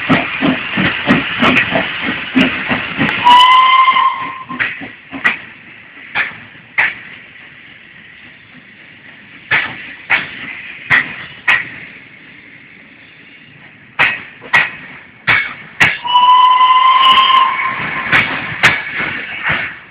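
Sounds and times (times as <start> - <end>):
train wheels clacking over rail joint: 0.0 - 12.4, 13.6 - 19.9
loud train whistle: 3.2 - 4.5, 16.0 - 18.1.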